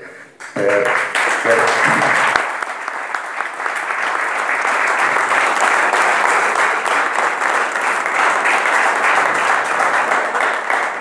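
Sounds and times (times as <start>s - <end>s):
crowd applauding: 0.0s - 11.0s.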